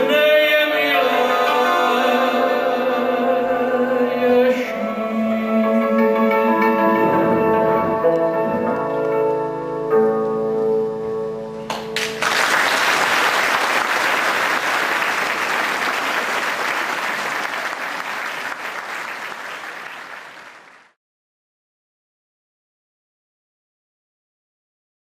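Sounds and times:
cimbalom and violins chord: 0:00.8 - 0:12.1
audience applause: 0:11.7 - 0:21.0.

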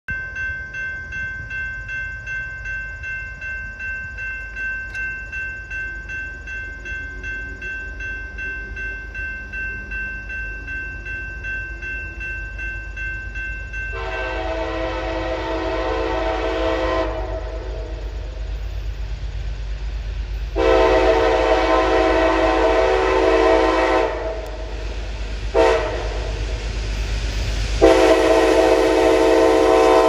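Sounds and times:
railroad crossing bell ringing: 0:00.1 - 0:30.0
train horn: 0:13.9 - 0:18.2, 0:20.5 - 0:24.7, 0:25.5 - 0:26.4, 0:27.8 - 0:30.0.

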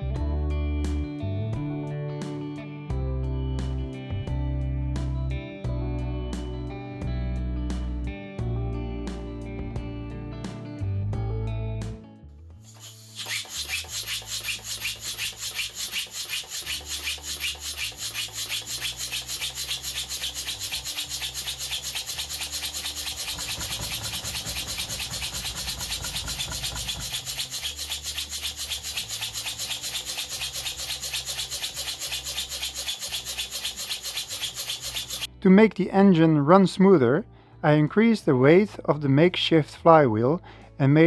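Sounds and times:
steam engine chuffing: 0:12.7 - 0:35.3.

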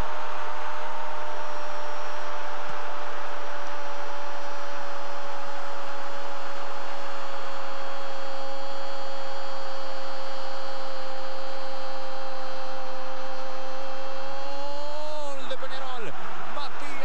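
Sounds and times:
stadium crowd noise: 0:00.0 - 0:03.6, 0:14.8 - 0:17.0.

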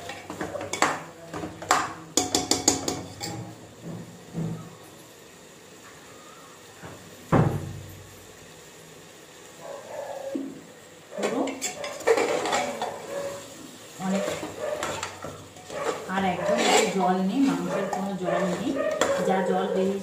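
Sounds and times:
metal spoon clanking on pot: 0:00.0 - 0:03.5, 0:11.2 - 0:13.0, 0:14.0 - 0:20.0
spoon scraping and knocking in pot: 0:00.0 - 0:03.5, 0:11.2 - 0:13.0, 0:14.0 - 0:20.0.

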